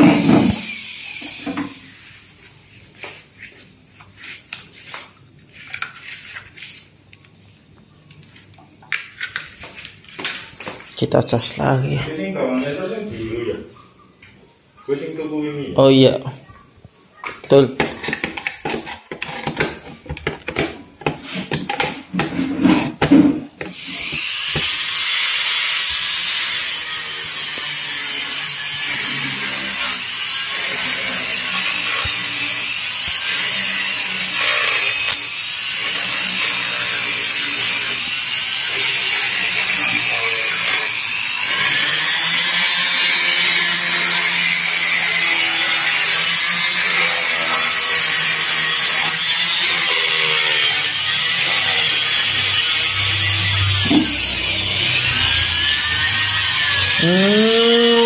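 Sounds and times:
mini rotary grinder running: 0.0s - 1.6s, 23.7s - 58.0s.

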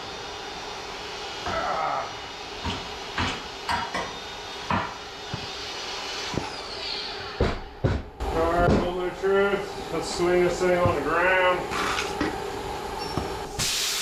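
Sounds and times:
compressed air hissing: 4.5s - 7.4s, 8.4s - 14.0s.

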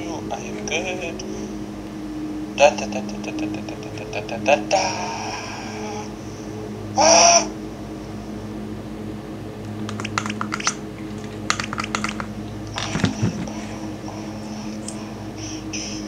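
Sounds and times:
low electrical hum: 0.0s - 16.0s
quick clicks and taps: 9.8s - 13.6s.

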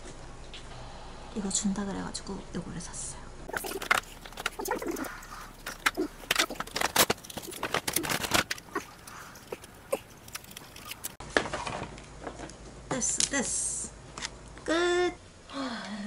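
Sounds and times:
packaging crinkling: 3.5s - 11.2s.

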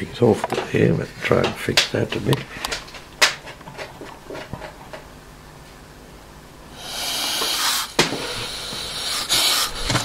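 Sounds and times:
compressed air hissing: 6.7s - 10.0s.

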